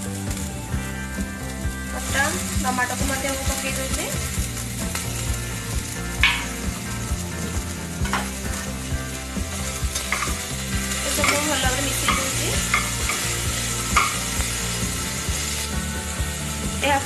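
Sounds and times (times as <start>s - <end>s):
vegetables sizzling in hot oil: 0.0s - 17.0s
metal spatula scraping and tapping pot: 10.0s - 10.5s, 11.1s - 14.3s.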